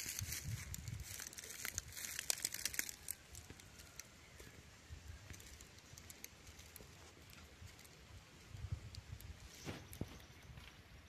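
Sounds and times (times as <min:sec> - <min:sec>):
faint crinkling and clicking: 0:00.0 - 0:04.5, 0:05.2 - 0:08.1.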